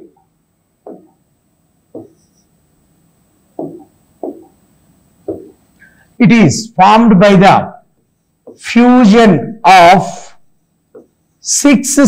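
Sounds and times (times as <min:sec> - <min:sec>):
soft taps on a touchscreen: 0:00.8 - 0:01.2, 0:01.9 - 0:02.5, 0:03.6 - 0:04.6, 0:05.2 - 0:05.6, 0:10.9 - 0:11.1.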